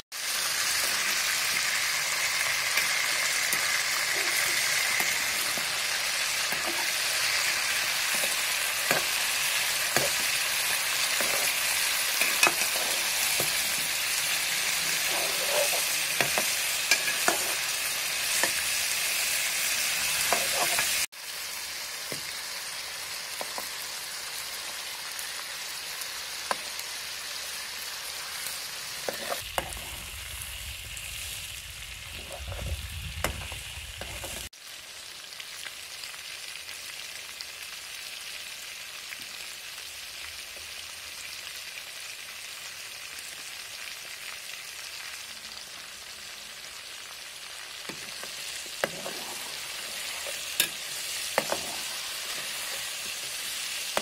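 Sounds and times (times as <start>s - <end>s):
chicken sizzling in hot oil: 0.0s - 54.0s
low rumble: 29.4s - 34.5s.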